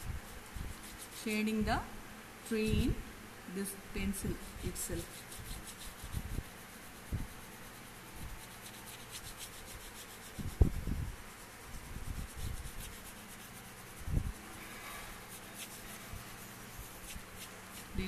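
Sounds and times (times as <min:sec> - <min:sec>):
pencil shading on paper: 0:04.3 - 0:10.5, 0:11.3 - 0:18.0.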